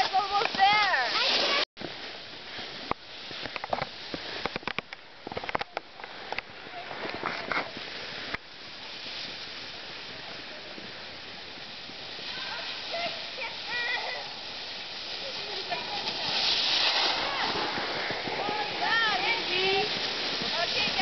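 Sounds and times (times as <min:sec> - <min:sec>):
skis sliding on snow: 0:00.0 - 0:21.0
wind on microphone: 0:14.2 - 0:21.0.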